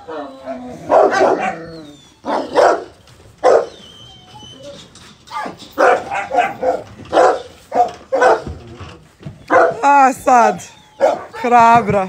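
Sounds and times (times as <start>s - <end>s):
dogs barking: 0.1s - 3.9s, 5.3s - 8.7s, 9.4s - 10.0s, 10.9s - 11.8s.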